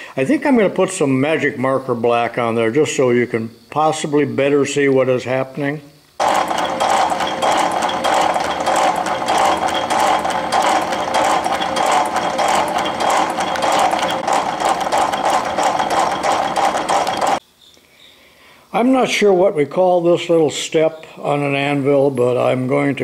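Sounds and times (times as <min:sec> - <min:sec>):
metal shaper clattering: 0:06.2 - 0:17.4.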